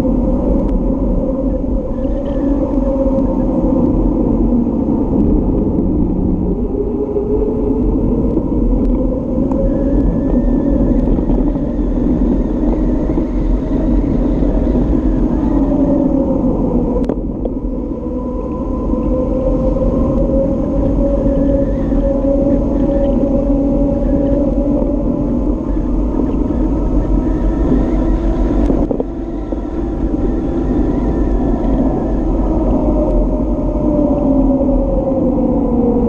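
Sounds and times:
wind rumbling on microphone: 0.0 - 36.0
bicycle tyres on asphalt: 7.0 - 33.9.

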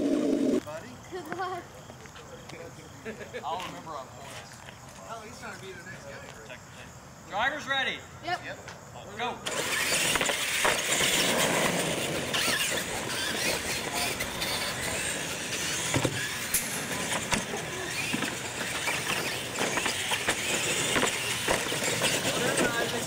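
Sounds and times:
toy truck motors whining: 9.4 - 23.0
tyres scrubbing on concrete: 9.5 - 23.0.

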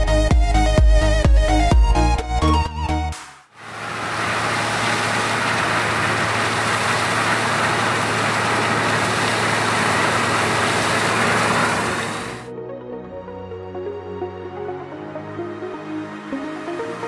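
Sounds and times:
combine harvester engine hum: 3.6 - 12.5
machinery noise: 3.6 - 12.5.

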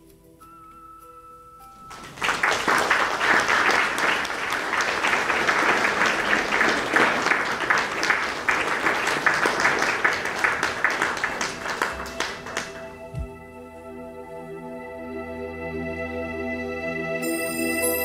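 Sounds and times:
audience applause: 1.9 - 13.3.

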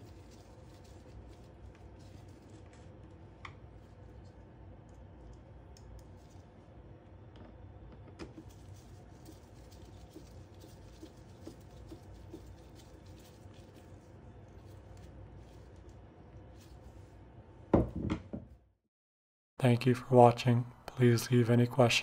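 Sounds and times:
low steady hum: 0.0 - 18.3.

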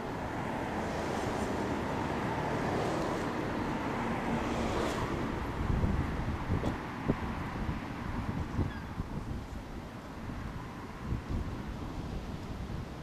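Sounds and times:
road traffic: 0.0 - 13.0
wind on microphone: 4.9 - 13.0.

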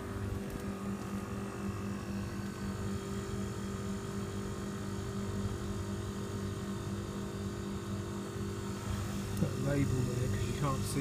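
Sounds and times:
compressor and fan humming: 0.0 - 11.0.

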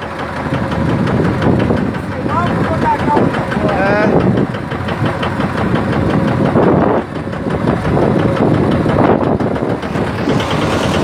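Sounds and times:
boat engine running: 0.0 - 11.0
continuous rushing noise: 6.5 - 11.0.

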